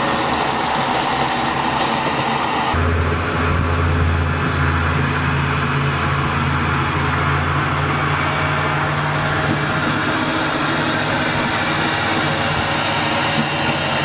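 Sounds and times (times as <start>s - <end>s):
diesel railcar engine drone: 0.0s - 14.0s.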